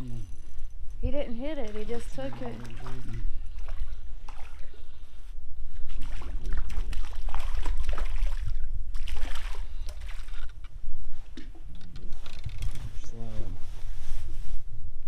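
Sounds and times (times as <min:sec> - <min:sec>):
fish splashing in water: 0:01.8 - 0:04.9, 0:05.9 - 0:10.6.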